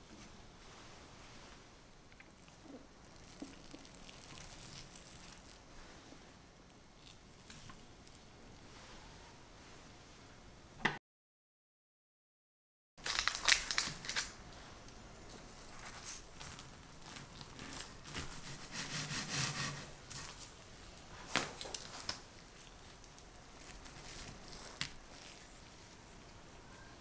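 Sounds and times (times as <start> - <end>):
biscuit rustling on paper: 2.4 - 5.7, 15.3 - 26.1
knife crunching through biscuit: 3.0 - 5.6.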